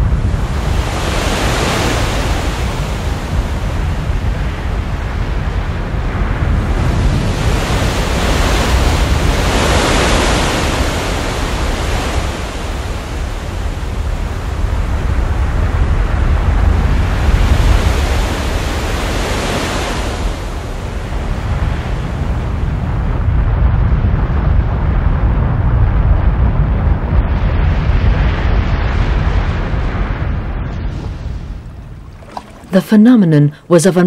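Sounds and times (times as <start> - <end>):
rough sea water surging: 0.0 - 24.8, 27.6 - 34.0
deep rumble: 20.5 - 33.4.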